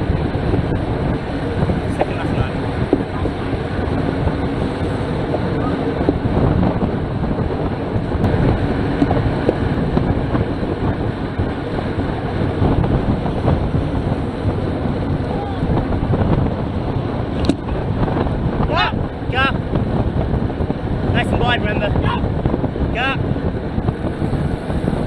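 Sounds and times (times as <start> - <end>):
bike tyres humming on tarmac: 0.0 - 25.0
wind buffeting microphone: 0.0 - 25.0.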